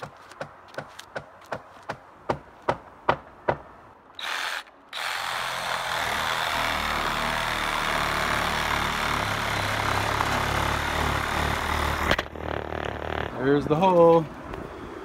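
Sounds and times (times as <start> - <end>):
cordless drill boring: 4.2 - 13.0.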